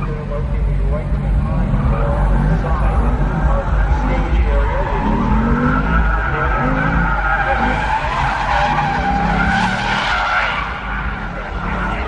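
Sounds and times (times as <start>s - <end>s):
car engine revving: 0.0s - 12.0s
tyres squealing: 3.8s - 12.0s.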